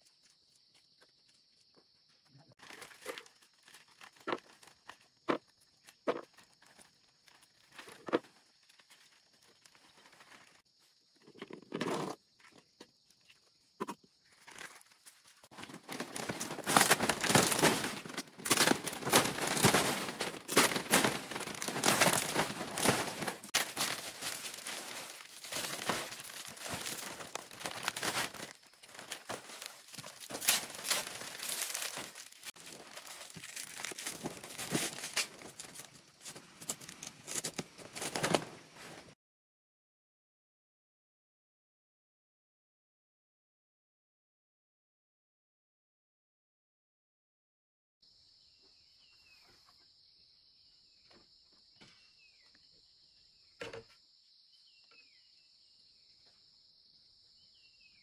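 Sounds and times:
footsteps: 15.4s - 39.1s
dry material crumpling and tearing: 15.5s - 35.9s.

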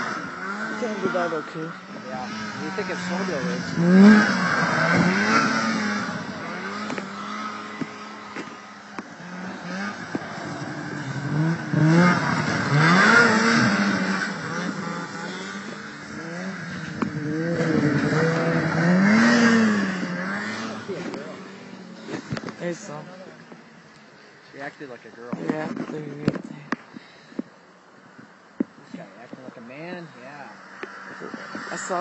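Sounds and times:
snowmobile engines revving: 0.0s - 26.7s, 28.8s - 32.0s.

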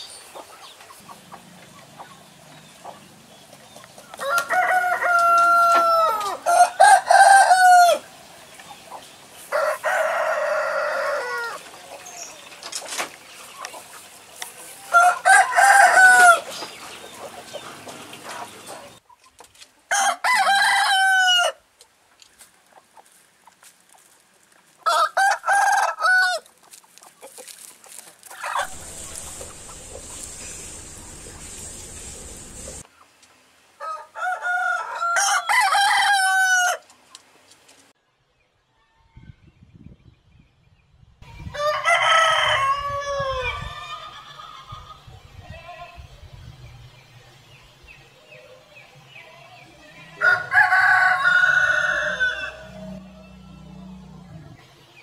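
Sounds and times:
roosters crowing: 4.0s - 8.2s, 9.4s - 13.1s, 14.7s - 19.0s, 19.9s - 21.6s, 24.8s - 26.5s, 28.4s - 32.8s, 33.8s - 36.9s, 41.4s - 46.2s, 49.1s - 55.0s
low steady hum: 28.7s - 32.8s, 51.9s - 55.0s.

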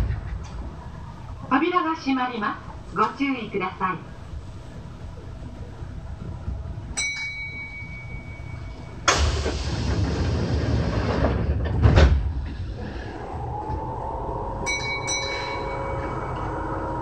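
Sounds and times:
ding chime: 7.0s - 8.8s, 14.6s - 16.4s
clunks: 7.0s - 12.9s
air brakes hissing: 9.0s - 11.2s.

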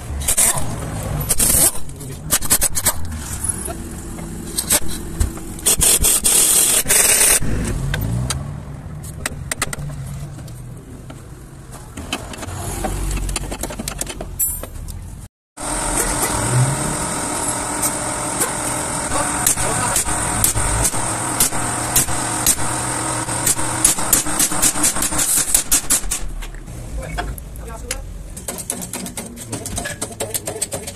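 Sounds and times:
pneumatic impact wrench hammering: 0.2s - 3.2s, 4.4s - 8.0s, 15.7s - 26.5s, 28.4s - 30.9s.

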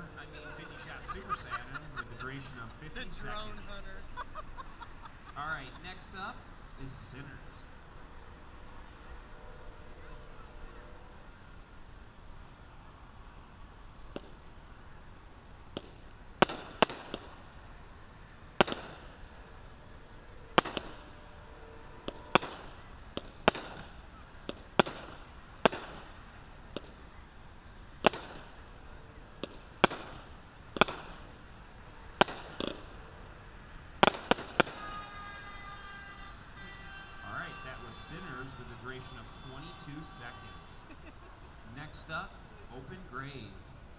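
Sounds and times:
fireworks bangs: 15.7s - 17.6s, 18.6s - 19.3s, 20.6s - 21.3s, 22.0s - 27.1s, 28.0s - 28.7s, 29.3s - 31.4s, 32.2s - 33.1s, 34.0s - 38.0s.

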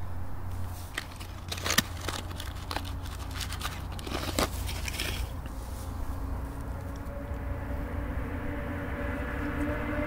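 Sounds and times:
low steady rumble: 0.0s - 10.0s
light crinkling: 0.5s - 7.1s
small clicks and scrapes: 0.7s - 5.6s.

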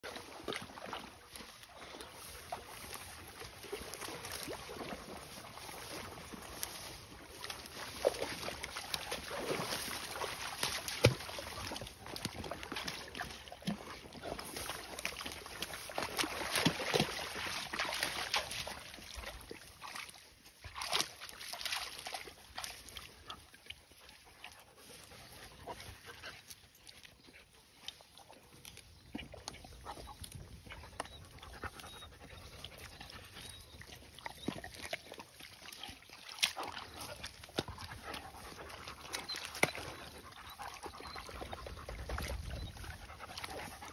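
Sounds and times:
dog lapping water: 0.0s - 43.9s
dog panting: 29.8s - 33.8s, 37.0s - 43.9s.

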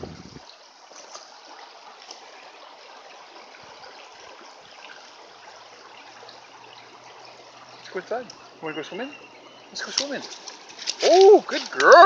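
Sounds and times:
creek running over stones: 0.0s - 12.0s
faint ticks: 8.2s - 8.4s.

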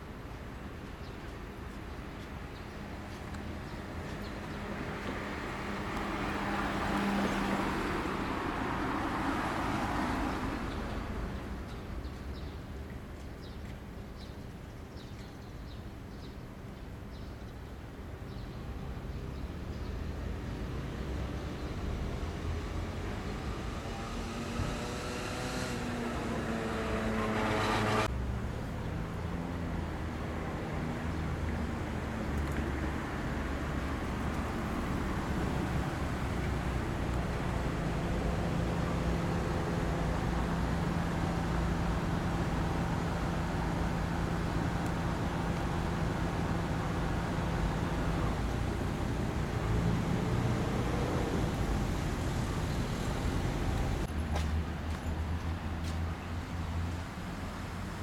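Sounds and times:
vehicle passing: 20.7s - 28.2s, 32.3s - 54.5s
distant engine droning: 21.3s - 28.2s, 33.0s - 54.2s.

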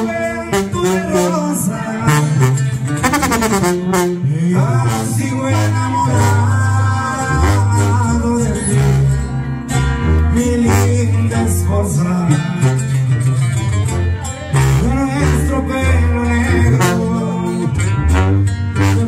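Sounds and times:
plucked acoustic guitars: 0.0s - 19.0s
tuba bass line: 0.0s - 19.0s
person singing: 4.1s - 9.3s, 10.0s - 12.9s, 14.2s - 17.8s.

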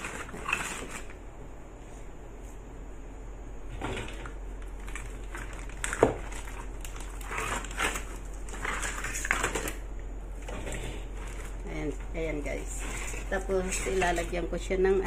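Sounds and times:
plastic bag crinkling: 4.6s - 9.8s
dried fins rustling and scraping: 10.4s - 14.5s.

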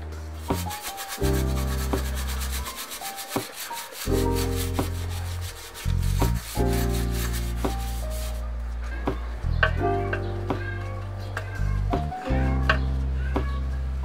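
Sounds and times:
brush scrubbing a bicycle frame: 0.4s - 8.5s
lofi music with bass line: 4.1s - 14.0s.

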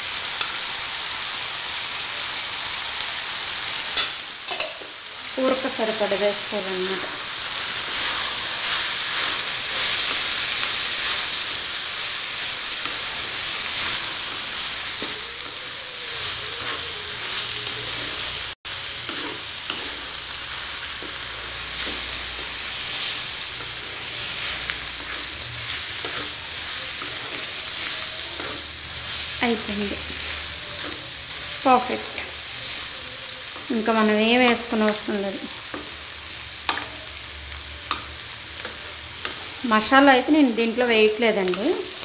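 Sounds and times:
vegetables sizzling in a pan: 0.0s - 42.0s
spatula scraping a pan: 7.0s - 33.8s.

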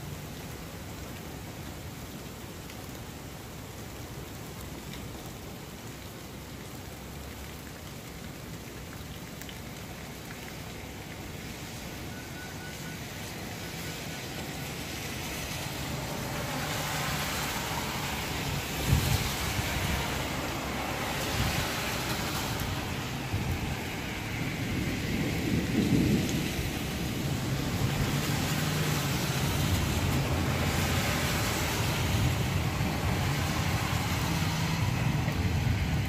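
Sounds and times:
steady rain: 0.0s - 36.0s
thunder rumbling: 18.3s - 36.0s.

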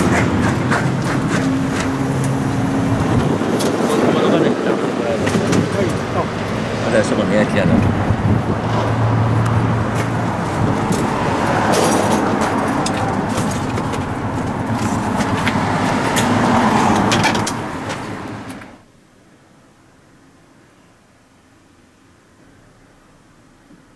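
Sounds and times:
scattered clicks and knocks: 0.0s - 2.4s, 5.2s - 6.6s, 9.4s - 18.7s
road vehicle noise: 0.0s - 23.9s.

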